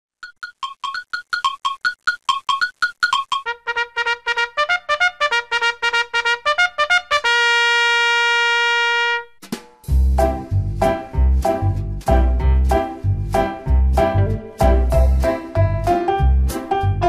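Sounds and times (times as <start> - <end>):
trumpet playing: 3.4 - 9.4
bouncy tune with heavy bass beat: 9.4 - 17.0.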